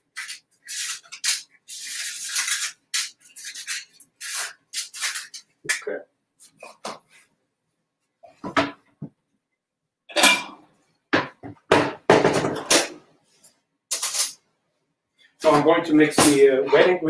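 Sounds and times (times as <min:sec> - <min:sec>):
dishes clinking and knocking: 0:08.4 - 0:08.9, 0:10.1 - 0:13.0.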